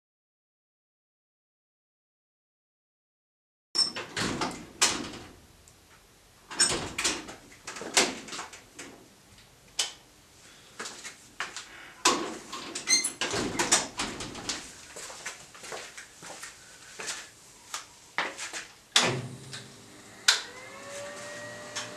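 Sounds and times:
person moving about workshop: 5.8 - 19.8, 20.4 - 21.9
footsteps on concrete floor: 14.6 - 18.8.

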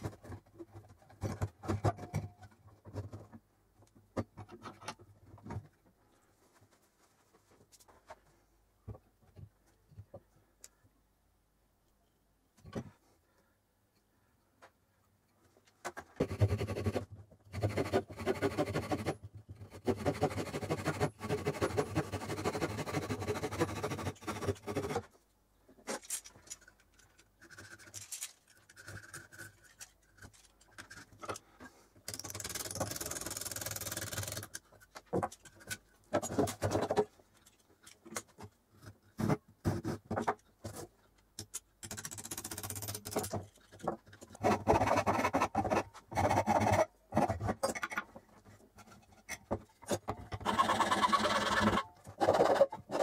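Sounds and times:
hand tools scraping wood: 16.2 - 25.1.

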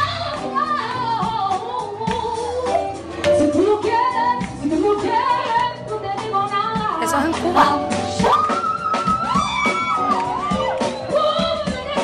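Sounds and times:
woman singing pop song: 3.6 - 8.0
backing music: 6.9 - 8.1.

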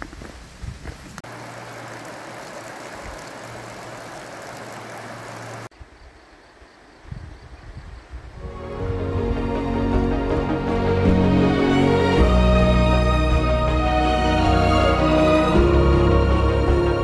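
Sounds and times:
stream running over rocks: 0.2 - 5.7.

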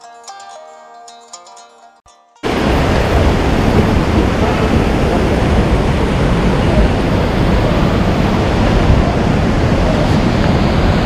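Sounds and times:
mountain stream rushing over boulders: 2.4 - 11.0.

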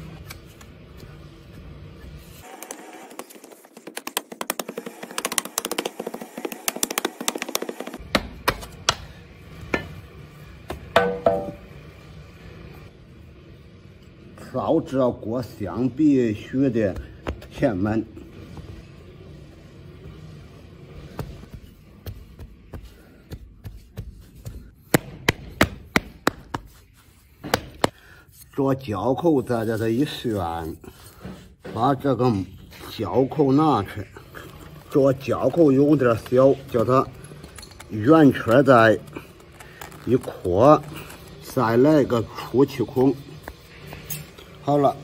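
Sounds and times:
ringing metallic clank: 11.0 - 11.7.

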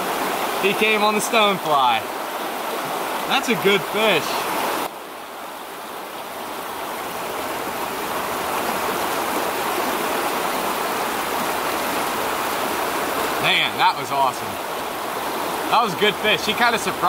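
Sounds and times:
water rushing over rocks: 0.0 - 17.0.

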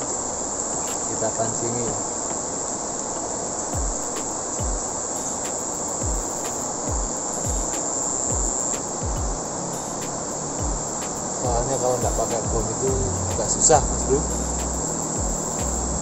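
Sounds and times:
insects chorus: 0.0 - 16.0
dull low thumps: 8.3 - 9.5, 10.5 - 16.0.

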